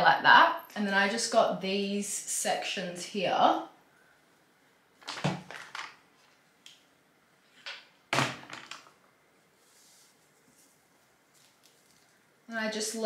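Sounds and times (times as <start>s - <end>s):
hands rustling through hair: 9.6s - 12.2s.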